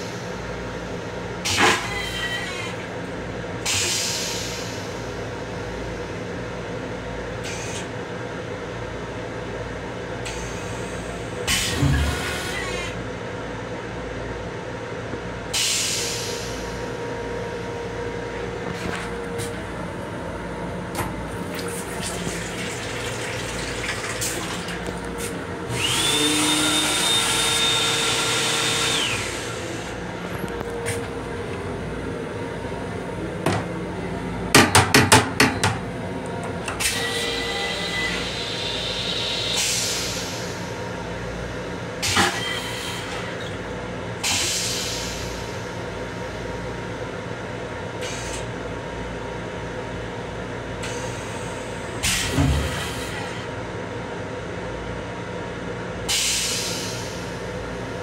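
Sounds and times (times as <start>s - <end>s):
electric railcar running hum: 0.0s - 21.5s, 24.4s - 58.0s.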